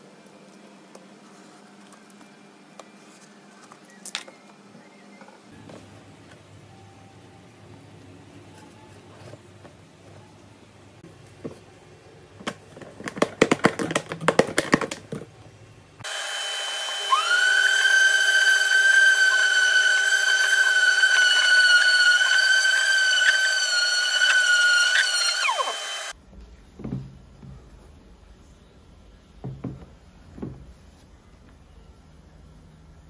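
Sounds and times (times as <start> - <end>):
wood router whining: 16.0 - 26.2.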